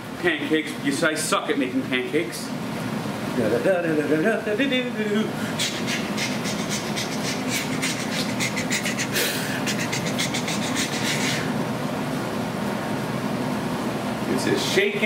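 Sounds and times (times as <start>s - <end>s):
steady hum and hiss: 0.0s - 15.0s.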